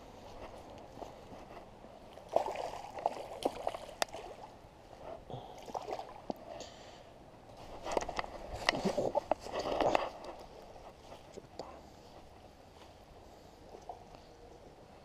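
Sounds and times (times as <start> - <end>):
water splashing and sloshing: 0.2 - 6.5.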